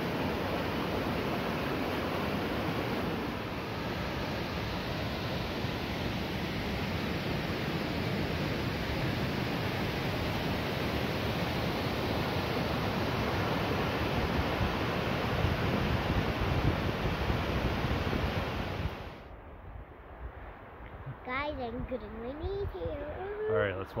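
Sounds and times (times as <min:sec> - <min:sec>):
waterfall rushing over rock: 0:00.0 - 0:19.3.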